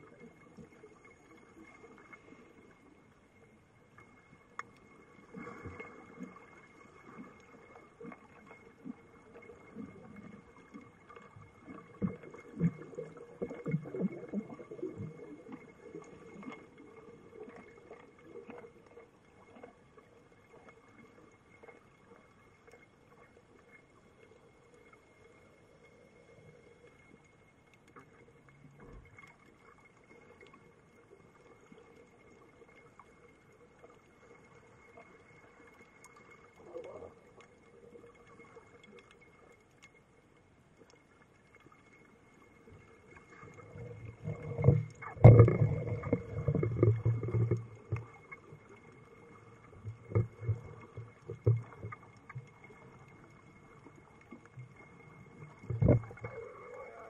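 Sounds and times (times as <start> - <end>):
underwater rumbling and knocks: 5.3 - 18.6, 42.8 - 57.0.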